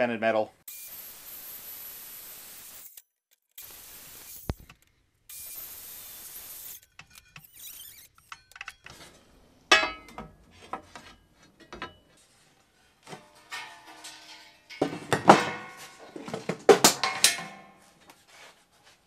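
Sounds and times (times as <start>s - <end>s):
steady hiss: 0.8s - 2.9s, 3.6s - 4.7s, 5.3s - 6.8s
ringing metallic clank: 9.7s - 10.2s, 13.1s - 16.2s.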